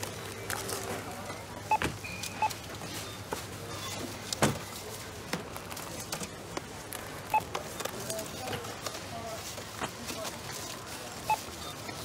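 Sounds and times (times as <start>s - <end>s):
barcode scanner beeps: 11.2s - 12.0s.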